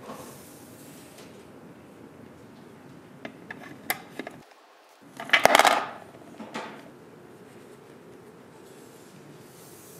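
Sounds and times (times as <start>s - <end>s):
plastic toy clattering into bin: 5.2s - 6.0s.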